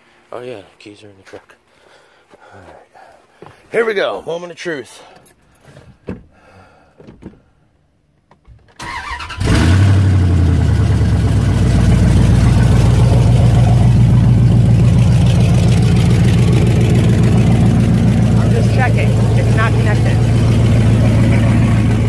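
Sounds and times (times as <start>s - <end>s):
truck engine cranking and idling: 8.6s - 22.0s.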